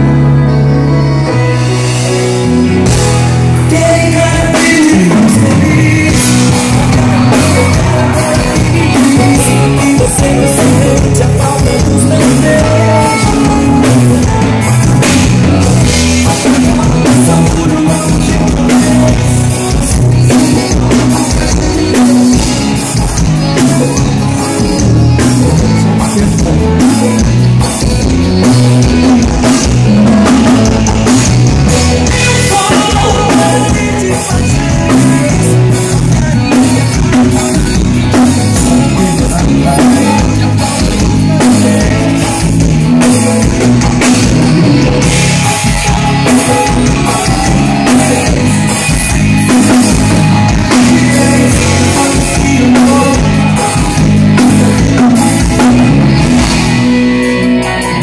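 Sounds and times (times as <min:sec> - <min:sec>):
drum kit: 0:00.0 - 0:58.0.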